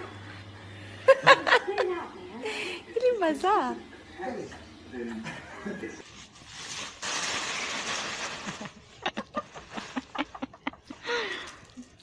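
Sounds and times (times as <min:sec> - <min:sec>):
dry leaves rustling and crunching: 0:06.0 - 0:08.8.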